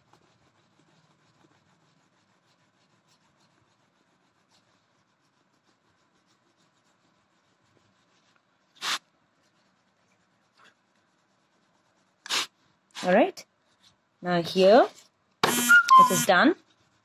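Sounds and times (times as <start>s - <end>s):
scratchy rasp: 0.0s - 14.0s, 14.6s - 17.0s
wax crayon rubbing on paper: 0.0s - 17.0s.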